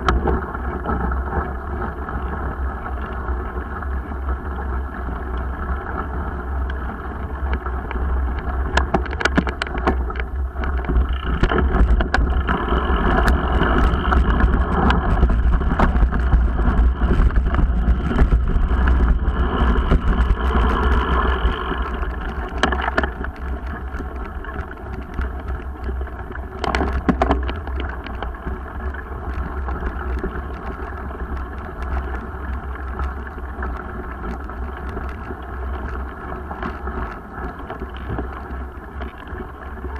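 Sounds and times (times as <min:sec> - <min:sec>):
bike ride rumble and wind buffeting: 0:00.0 - 0:39.9
bike knocks and rattle: 0:08.4 - 0:39.9.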